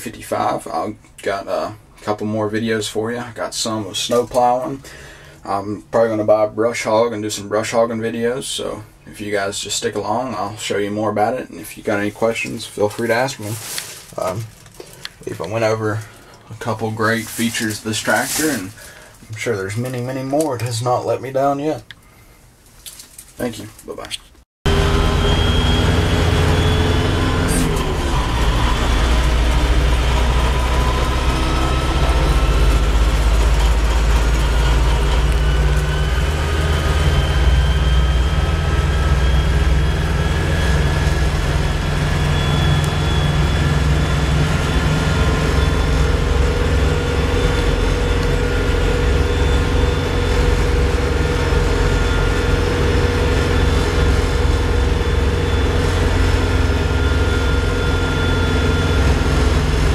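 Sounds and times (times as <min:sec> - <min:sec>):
faint high whine: 0:24.7 - 0:59.9
tractor diesel engine running: 0:24.7 - 0:59.9.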